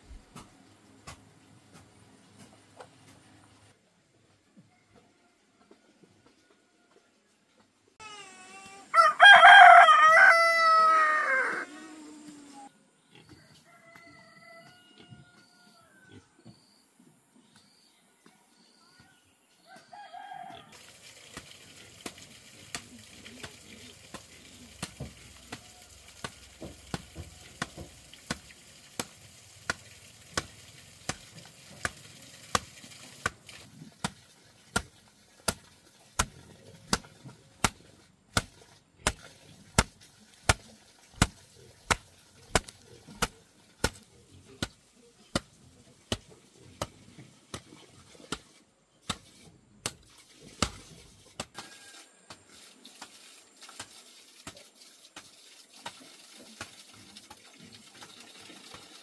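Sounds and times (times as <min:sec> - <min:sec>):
rooster crowing: 0:08.9 - 0:12.0, 0:13.4 - 0:16.1, 0:19.7 - 0:20.8, 0:51.6 - 0:52.2.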